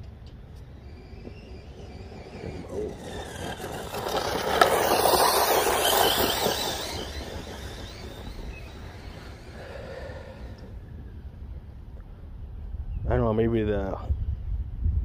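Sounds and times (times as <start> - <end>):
rc car motor whining: 0.0 - 10.8.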